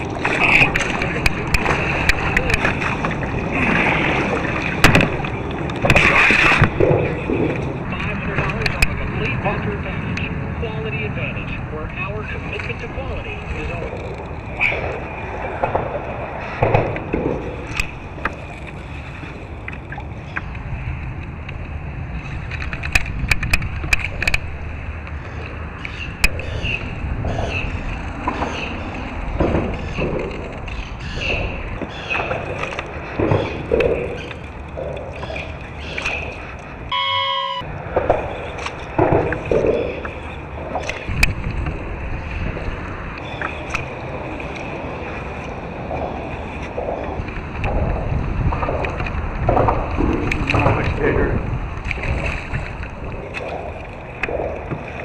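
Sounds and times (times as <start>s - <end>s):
water sloshing against kayak hull: 0.0s - 55.0s
sharp clicks and knocks: 22.5s - 24.6s.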